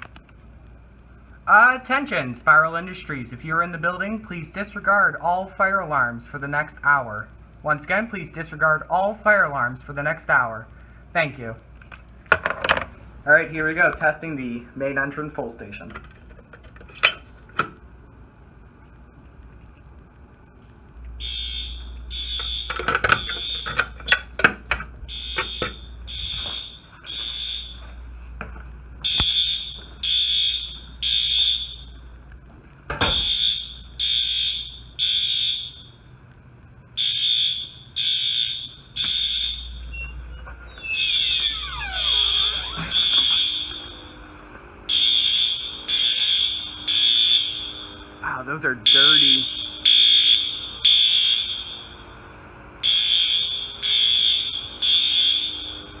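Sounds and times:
fire alarm horn blasts: 21.2 - 24.0, 25.1 - 28.1, 29.0 - 32.1, 33.0 - 36.1, 37.0 - 56.0.

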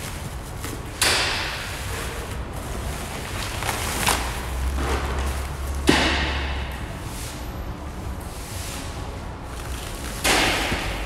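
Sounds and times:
plastic wrapping crinkling: 1.9 - 5.8, 9.5 - 10.3.

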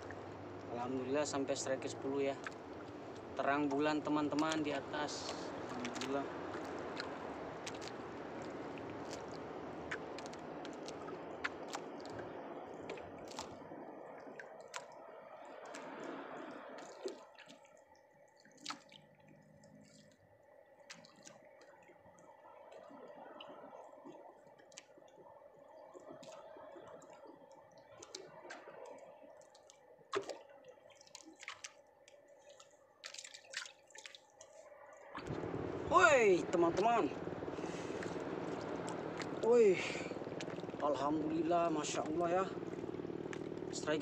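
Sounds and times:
water dripping: 0.0 - 16.1, 16.8 - 35.5, 36.2 - 44.0
low steady hum: 0.0 - 17.1, 34.6 - 44.0.

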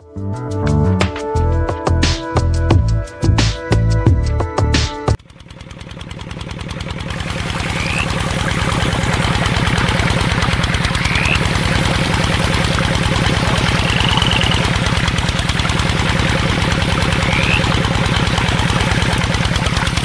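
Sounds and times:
tractor engine idling: 5.2 - 20.0.

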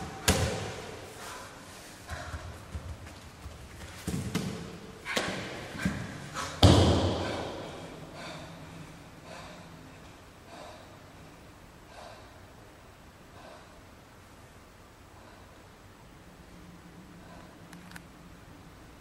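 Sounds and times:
heavy thuds echoing in a hall: 0.0 - 1.1, 2.1 - 8.0.

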